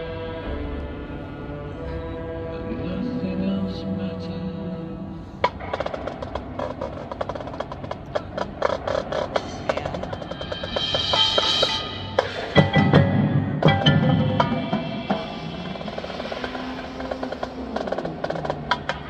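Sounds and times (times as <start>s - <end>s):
marching band chord: 0.0s - 7.6s, 8.6s - 18.5s
rapid percussion strikes: 5.4s - 19.0s.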